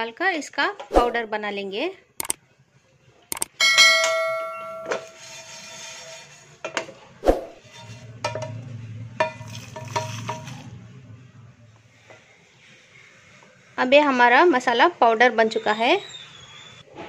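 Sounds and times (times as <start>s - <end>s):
ringing chime: 3.6s - 5.2s
pan clinking against jar: 9.2s - 10.6s.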